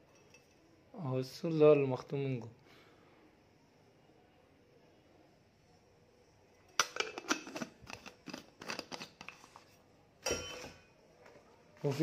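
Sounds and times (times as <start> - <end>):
metal mug and lid clicking: 6.8 - 9.4.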